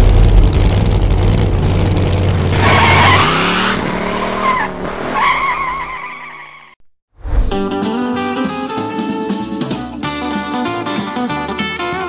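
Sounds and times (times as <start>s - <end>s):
car engine rumbling and revving: 0.0s - 6.8s
tires squealing: 1.9s - 6.8s.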